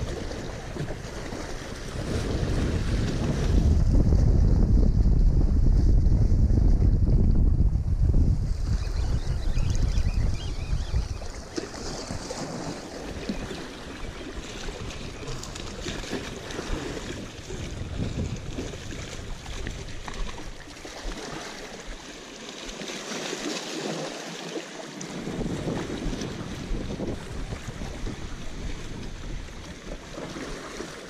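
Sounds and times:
waves washing against rocks: 0:00.0 - 0:04.4, 0:11.4 - 0:31.0
wind buffeting microphone: 0:00.0 - 0:21.2, 0:25.1 - 0:30.9.

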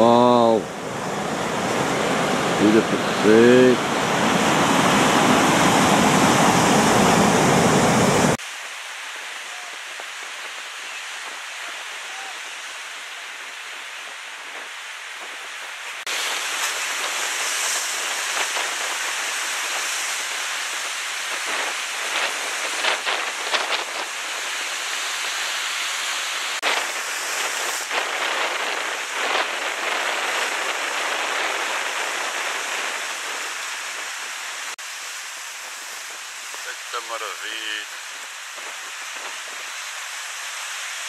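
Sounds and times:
sea surf breaking on rocks: 0:00.0 - 0:08.4, 0:16.0 - 0:34.8
sharp water splashes: 0:16.0 - 0:37.1.

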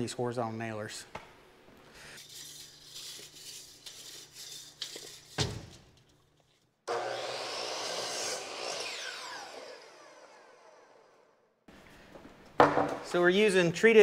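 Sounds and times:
lumber scraping and handling: 0:02.2 - 0:06.7
miter saw whining: 0:06.9 - 0:11.5
wood thud: 0:12.6 - 0:13.0.

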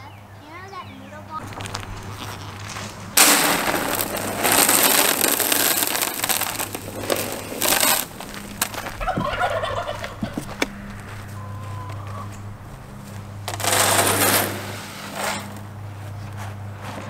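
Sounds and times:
dry feed pouring into trough: 0:03.2 - 0:08.7, 0:13.5 - 0:15.4
faint warbling calls: 0:09.0 - 0:12.4.

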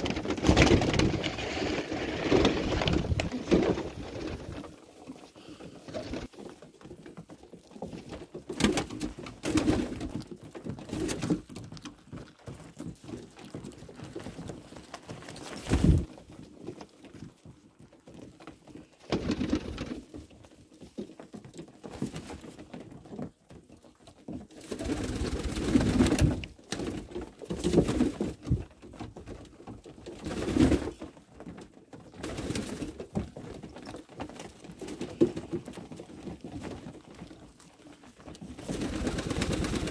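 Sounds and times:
wings flapping: 0:00.0 - 0:06.4, 0:08.1 - 0:10.2, 0:14.0 - 0:16.1, 0:19.0 - 0:20.1, 0:24.6 - 0:28.6, 0:30.2 - 0:31.0, 0:32.2 - 0:39.9.

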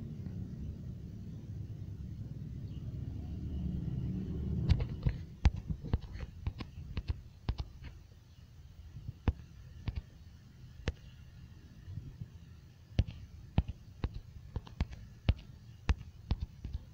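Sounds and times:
low rumble: 0:00.0 - 0:05.9.

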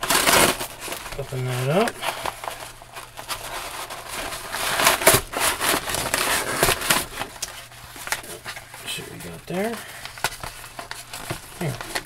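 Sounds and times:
paper crackling and crinkling: 0:00.0 - 0:12.0.

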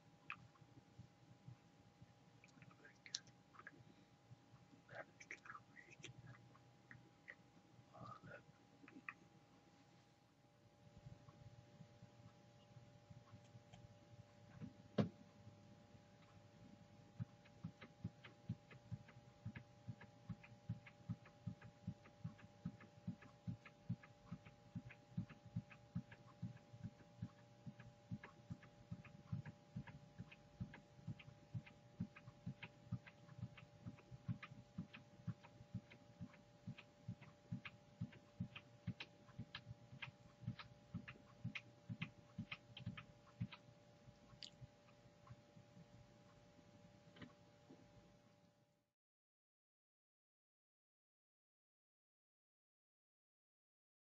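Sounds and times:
two-tone electrical hum: 0:00.0 - 0:48.8
mouse scroll wheel clicks: 0:17.2 - 0:43.6.

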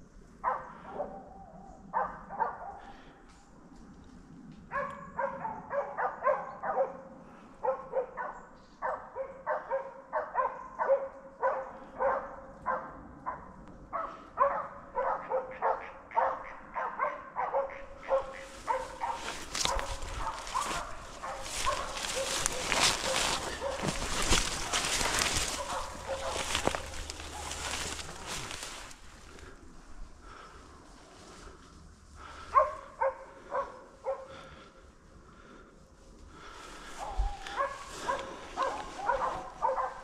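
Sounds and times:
hunting dogs baying: 0:00.4 - 0:03.2, 0:04.7 - 0:30.6, 0:32.2 - 0:35.6, 0:36.3 - 0:40.0
rustling of brush and dry leaves: 0:17.9 - 0:40.0.

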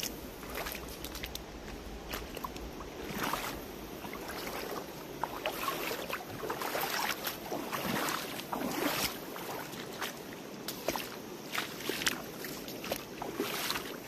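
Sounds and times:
rushing river water splashing: 0:00.0 - 0:14.0.

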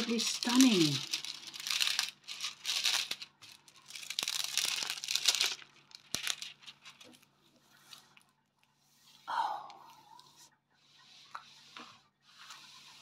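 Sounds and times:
packaging crinkling and rustling: 0:00.0 - 0:08.3.

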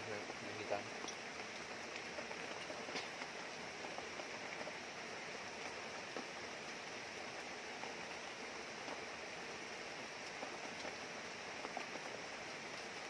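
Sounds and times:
rain: 0:00.0 - 0:13.0
river water running: 0:00.0 - 0:13.0.

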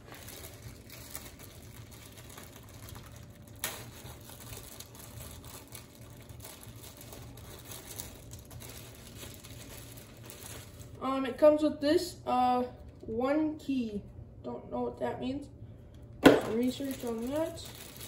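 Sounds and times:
packaging rustling: 0:00.0 - 0:11.0, 0:16.2 - 0:18.0
steady low hum: 0:00.0 - 0:18.0.

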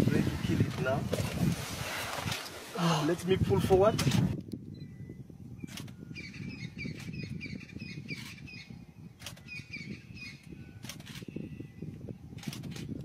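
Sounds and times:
bird chirping: 0:04.8 - 0:11.8.

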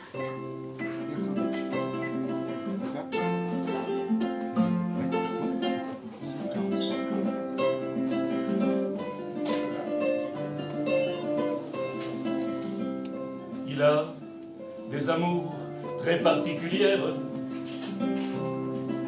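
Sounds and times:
acoustic guitar plucking: 0:00.0 - 0:19.0.

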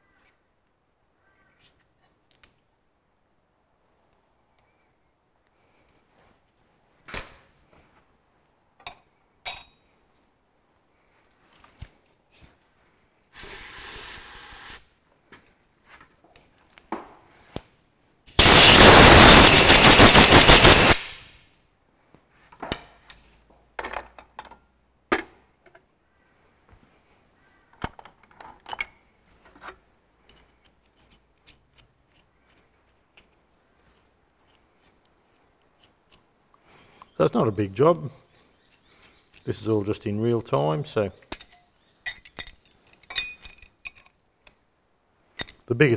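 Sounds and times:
tools and washers clinking: 0:07.0 - 0:07.7, 0:08.8 - 0:09.9, 0:17.5 - 0:18.5, 0:27.7 - 0:34.6, 0:41.2 - 0:44.6, 0:45.3 - 0:45.7
aerosol spray hiss: 0:13.4 - 0:14.9, 0:18.4 - 0:21.4
spluttering air blast: 0:18.4 - 0:21.4.

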